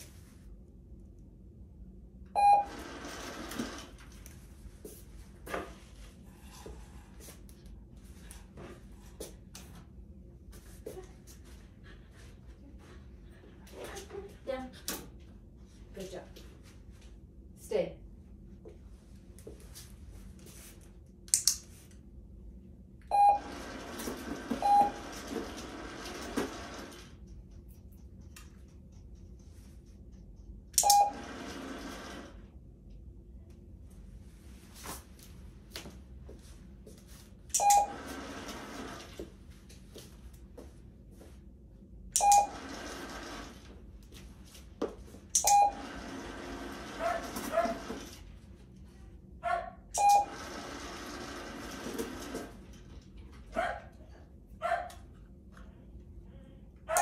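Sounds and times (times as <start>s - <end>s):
faint taps and shuffles: 18.6s - 20.9s, 33.5s - 37.4s, 39.2s - 41.5s
short electronic beeps: 42.2s - 42.6s, 50.0s - 50.3s.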